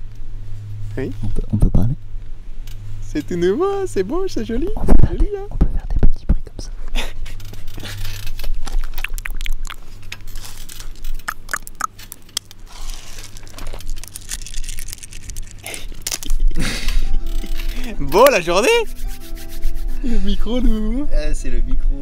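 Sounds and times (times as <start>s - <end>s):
crackling and rubbing noises: 7.4s - 16.5s, 17.3s - 20.0s
sharp clicks: 8.8s - 15.5s.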